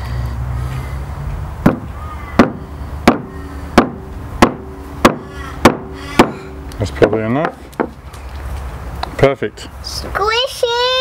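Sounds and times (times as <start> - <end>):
meat mallet pounding on board: 1.6 - 6.4.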